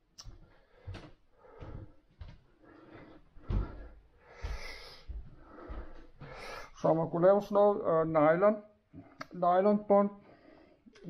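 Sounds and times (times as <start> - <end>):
footsteps on wooden floor: 0.3 - 6.8.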